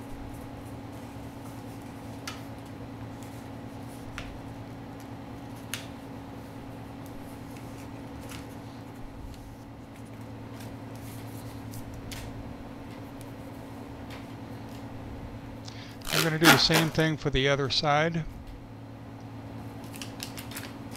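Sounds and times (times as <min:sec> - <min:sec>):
steady low hum: 0:00.0 - 0:20.9
duct tape and paper crinkling: 0:07.0 - 0:12.4, 0:15.7 - 0:17.0, 0:19.7 - 0:20.9.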